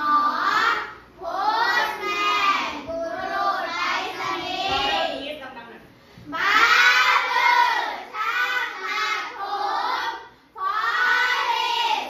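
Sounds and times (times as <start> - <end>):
children singing in unison: 6.3 - 12.0.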